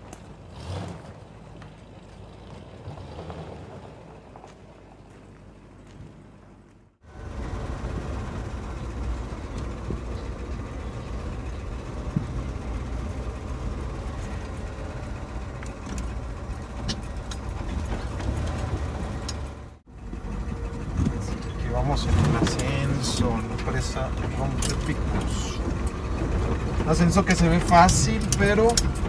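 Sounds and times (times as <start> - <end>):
pickup engine and road rumble: 0.0 - 29.0
clicks and rattles: 22.1 - 29.0.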